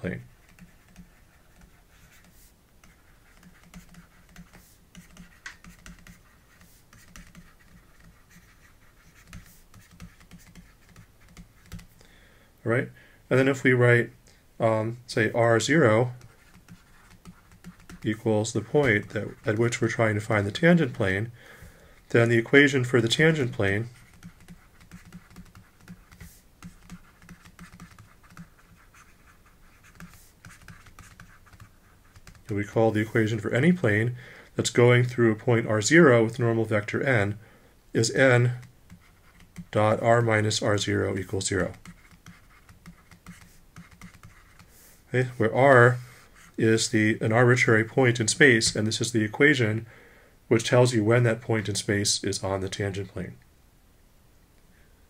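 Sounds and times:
stylus scratching on tablet: 0.0s - 12.0s, 15.4s - 21.2s, 22.1s - 37.4s, 38.0s - 47.0s.

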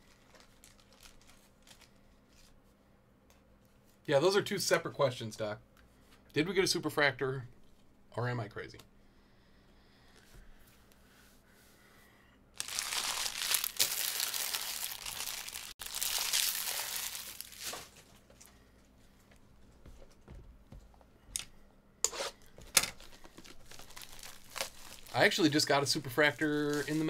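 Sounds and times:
sharp plastic crackles: 0.0s - 2.5s, 12.6s - 18.5s, 22.6s - 27.0s
plastic wrapping crinkling and tearing: 0.0s - 2.6s, 12.6s - 18.5s, 22.9s - 27.0s.

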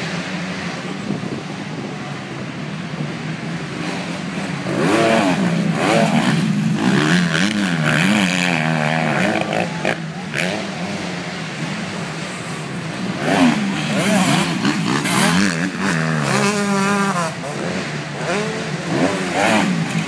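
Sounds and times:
motocross engine drone: 0.0s - 20.0s
dirt bike revving up and down: 3.4s - 20.0s.

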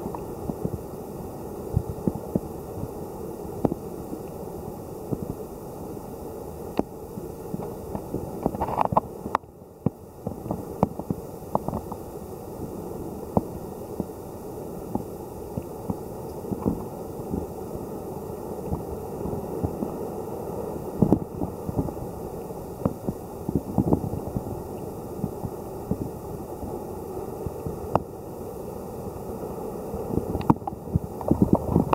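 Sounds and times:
muffled underwater rumble: 0.0s - 31.9s
small underwater clicks and pops: 7.5s - 12.0s, 14.9s - 17.5s, 30.3s - 31.9s.

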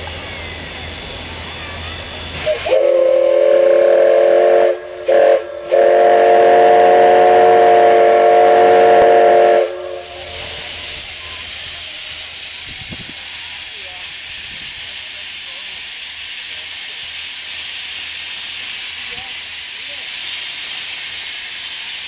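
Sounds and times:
steam hissing: 0.0s - 22.0s
steam locomotive whistle: 2.3s - 10.7s.

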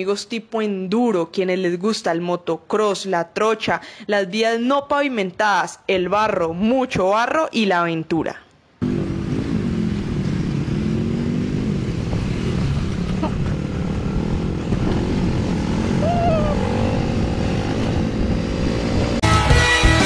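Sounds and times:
motorcycle engine running: 8.8s - 19.3s.

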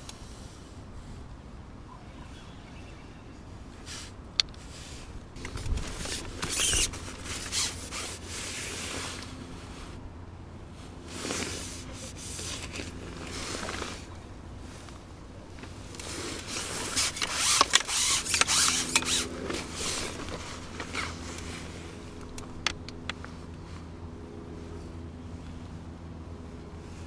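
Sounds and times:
waterproof clothing rustling: 4.7s - 10.0s
fishing reel clicking: 17.0s - 19.3s.

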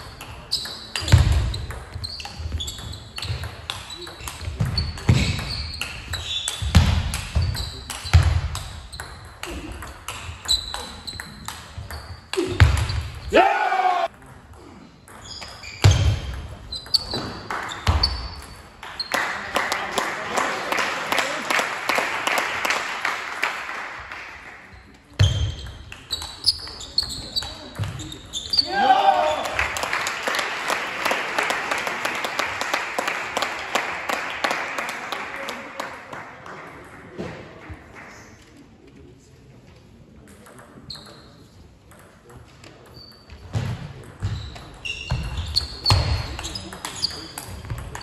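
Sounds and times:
table tennis ball pings: 0.0s - 12.8s
shoe squeaks on floor: 0.4s - 9.3s, 10.2s - 13.2s, 15.1s - 19.1s, 24.8s - 28.8s, 40.9s - 41.5s, 42.9s - 43.6s, 44.2s - 48.0s
spectators clapping: 18.9s - 24.7s, 29.1s - 38.4s.

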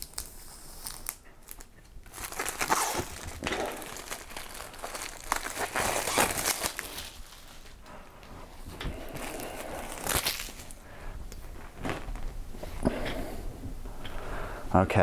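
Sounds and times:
plastic packaging crinkling: 0.0s - 8.3s, 8.9s - 12.4s.

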